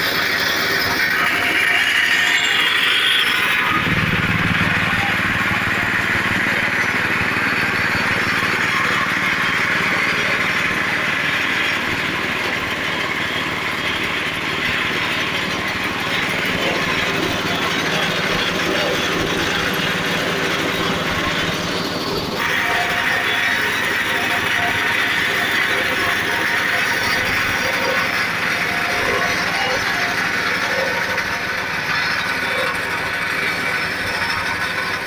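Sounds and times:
milling machine running: 0.0s - 35.0s
deep hum: 3.6s - 9.3s.

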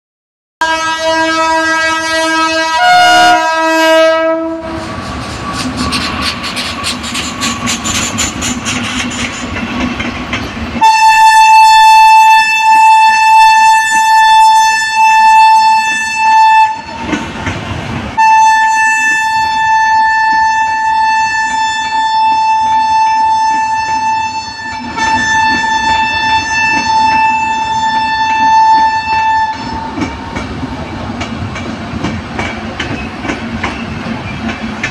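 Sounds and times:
train horn: 0.6s - 5.0s, 10.8s - 17.2s, 18.2s - 30.2s
train wheels clattering: 4.6s - 10.9s, 16.9s - 18.1s, 25.0s - 34.9s.

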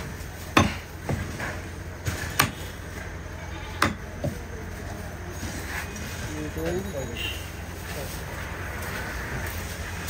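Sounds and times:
cleaver chopping meat on wood: 0.6s - 1.3s, 2.4s - 2.6s, 3.8s - 4.4s.

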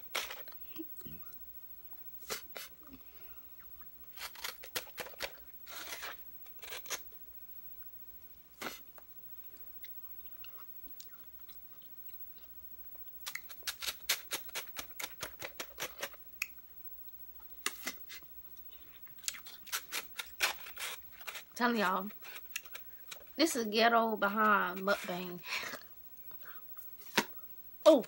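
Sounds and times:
person chewing: 8.2s - 16.6s, 17.4s - 23.4s.

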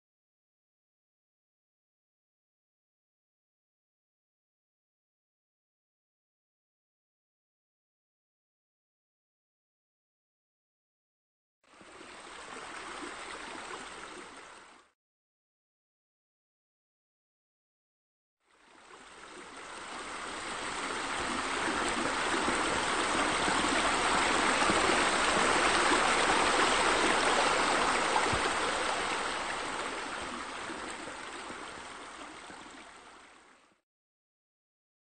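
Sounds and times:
flowing water rushing: 11.7s - 14.9s, 18.5s - 33.8s.

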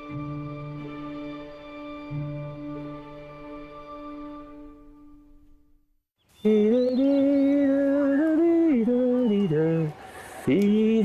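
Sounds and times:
background music: 0.0s - 5.8s.

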